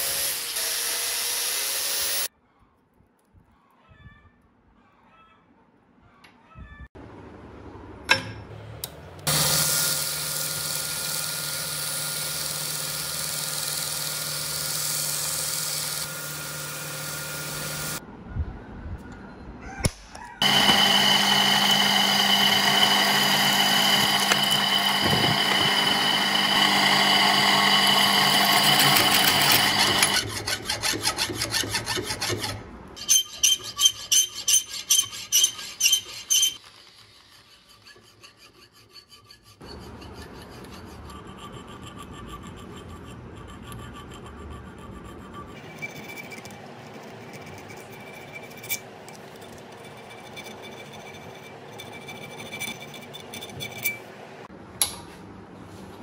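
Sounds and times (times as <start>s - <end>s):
drill boring through steel: 0.0s - 2.3s, 9.3s - 18.0s, 20.4s - 30.5s
belt sander grinding steel: 9.2s - 18.0s, 20.4s - 54.2s
hand file rasping: 20.5s - 36.6s, 37.4s - 54.0s.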